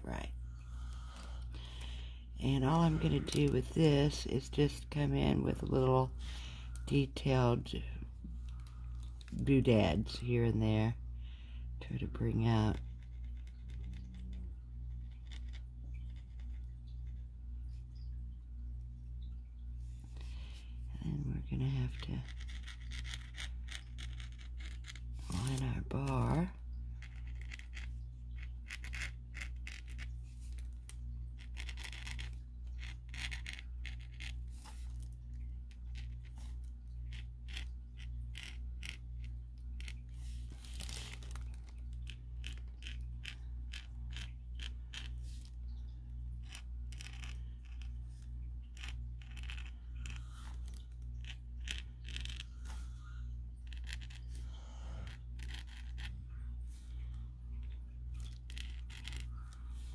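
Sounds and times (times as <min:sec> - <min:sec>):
steady low hum: 0:00.0 - 0:59.9
marker scratching on paper: 0:31.4 - 0:35.1, 0:46.4 - 0:52.8, 0:53.6 - 0:54.4, 0:55.0 - 0:56.8.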